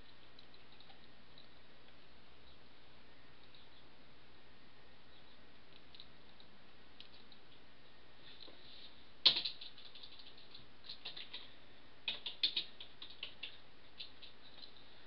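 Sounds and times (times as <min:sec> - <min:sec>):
faint steady hiss: 0:00.0 - 0:15.0
keyboard keys tapping: 0:12.1 - 0:14.8.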